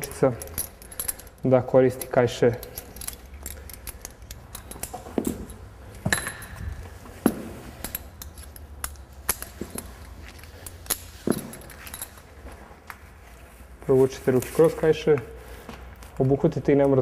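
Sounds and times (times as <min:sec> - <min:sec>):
metal hooks clinking and rattling: 0:00.0 - 0:12.7.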